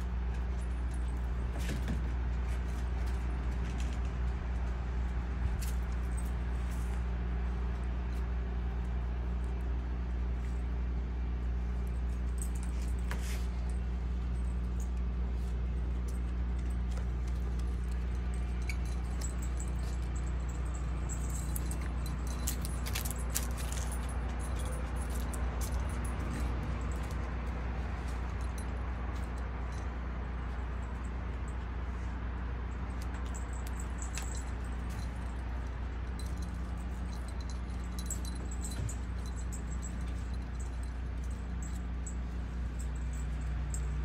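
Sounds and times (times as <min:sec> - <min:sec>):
low machine hum: 0:00.0 - 0:44.0
collar tag jingling: 0:11.7 - 0:44.0.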